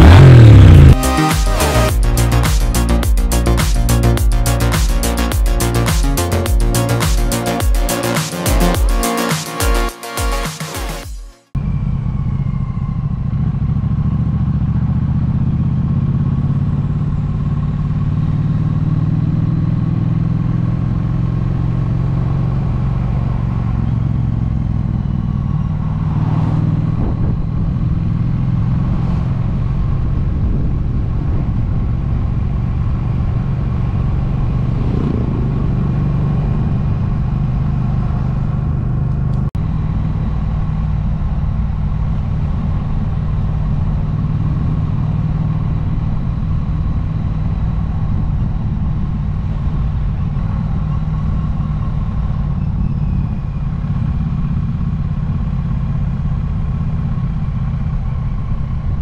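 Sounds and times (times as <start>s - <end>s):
motorcycle engine running: 0.0s - 9.2s, 11.1s - 59.0s
rushing wind noise: 25.6s - 38.5s.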